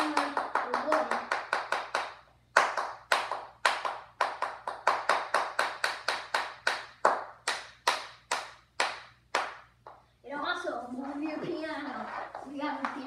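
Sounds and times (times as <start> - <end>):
child clapping hands: 0.0 - 10.0.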